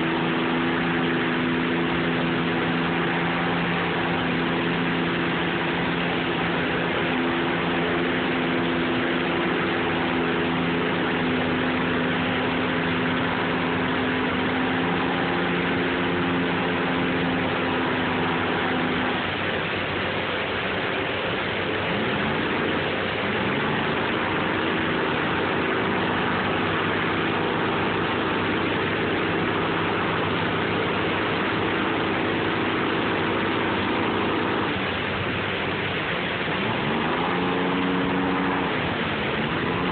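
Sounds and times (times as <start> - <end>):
barge engine running: 0.0 - 39.9
water rushing over a dam: 0.0 - 39.9.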